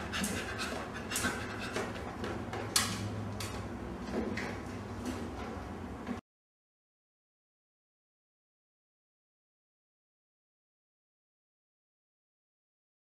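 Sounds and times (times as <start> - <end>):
small dog panting: 0.0 - 2.2.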